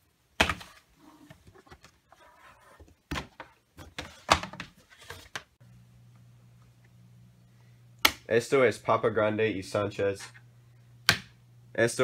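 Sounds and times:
cardboard rustling: 0.5s - 5.5s.

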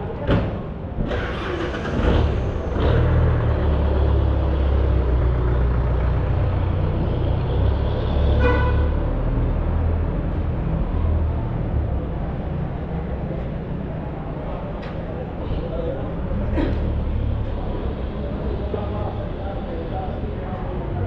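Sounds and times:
vehicle engine rumbling: 0.0s - 21.0s
horn toot: 8.4s - 9.0s.

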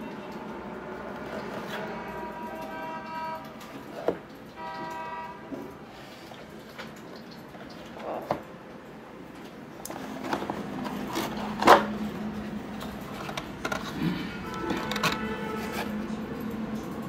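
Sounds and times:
horn toots: 4.6s - 5.6s, 14.1s - 16.0s.

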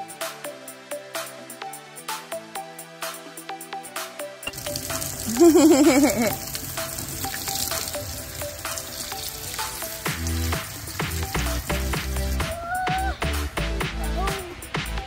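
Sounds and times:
background music: 0.0s - 15.0s
spraying water hiss: 4.5s - 15.0s.

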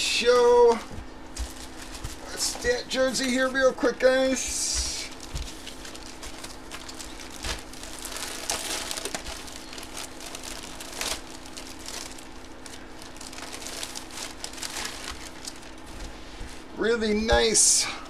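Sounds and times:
plastic bag crinkling: 5.0s - 16.7s.

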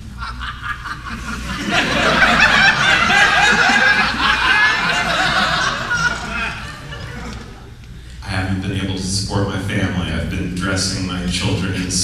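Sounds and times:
audience laughing: 0.0s - 7.8s.

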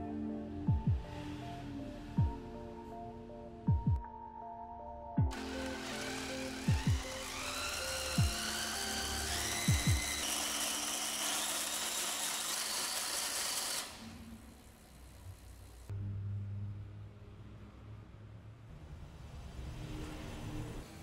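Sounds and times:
music with booming beats: 0.7s - 1.2s, 2.2s - 2.5s, 3.7s - 4.1s, 6.7s - 7.1s, 8.2s - 8.4s, 9.6s - 10.2s
cordless drill motor whining: 5.3s - 15.9s.

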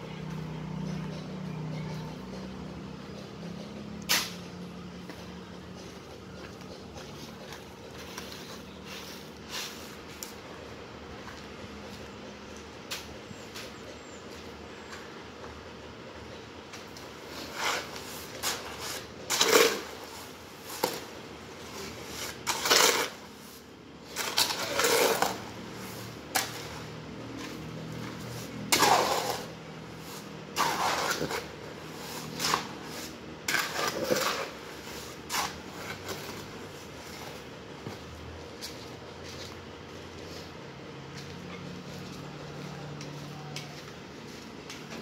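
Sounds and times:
hoe scraping wet mortar: 16.9s - 38.0s.

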